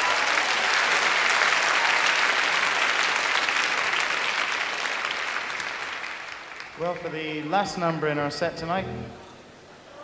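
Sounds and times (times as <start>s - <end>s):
audience applause: 0.0s - 7.4s.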